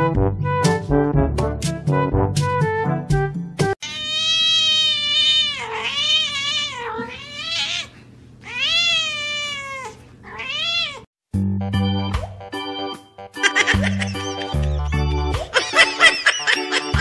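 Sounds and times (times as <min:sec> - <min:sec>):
music: 0:00.0 - 0:03.8, 0:11.3 - 0:17.0
cat meowing: 0:03.8 - 0:11.1.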